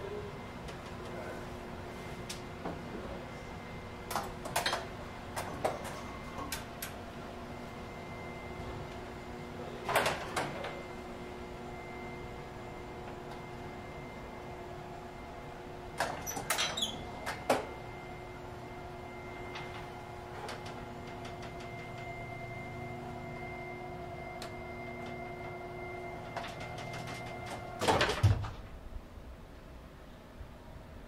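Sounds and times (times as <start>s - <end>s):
elevator drive humming: 0.0s - 31.0s
elevator clicks and clanks: 4.0s - 7.0s, 9.9s - 10.8s, 16.0s - 17.8s, 19.4s - 22.2s, 24.4s - 28.8s.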